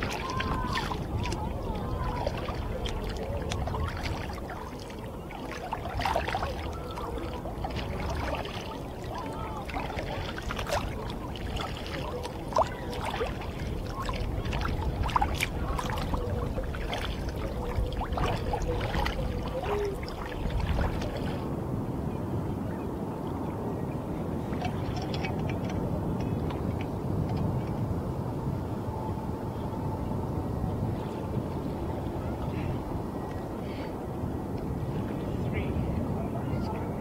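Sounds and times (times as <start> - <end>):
water dripping and trickling: 0.0 - 21.4, 24.6 - 25.8
waves lapping against kayak hull: 0.0 - 22.0, 24.1 - 28.6
wind rumble on microphone: 0.0 - 37.0.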